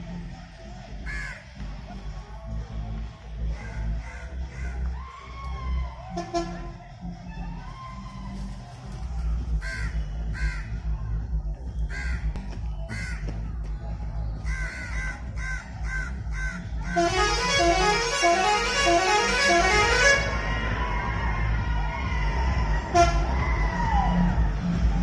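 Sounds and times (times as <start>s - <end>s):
bus engine rumbling: 0.0s - 25.0s
crows cawing: 1.1s - 1.4s, 3.6s - 5.0s, 9.6s - 10.8s, 11.8s - 12.3s, 12.9s - 13.3s, 14.4s - 17.1s
musical bus horn tune: 6.1s - 6.8s, 16.8s - 20.4s, 22.8s - 23.4s.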